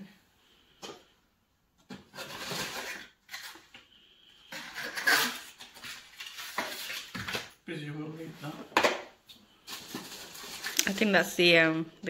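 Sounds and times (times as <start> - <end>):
cardboard packaging rustling: 2.0 - 3.8, 4.5 - 7.6, 9.6 - 11.2.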